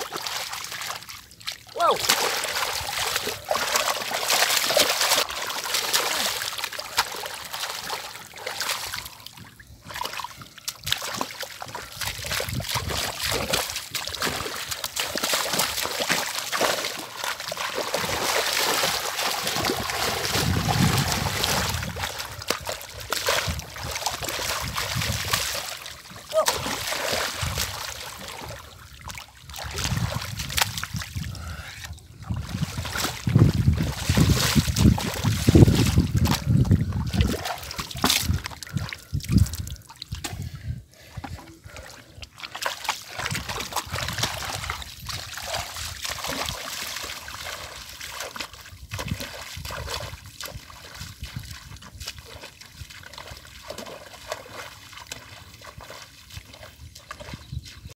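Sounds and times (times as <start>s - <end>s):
water trickling: 0.0s - 31.4s
muddy water splashing: 0.0s - 58.0s.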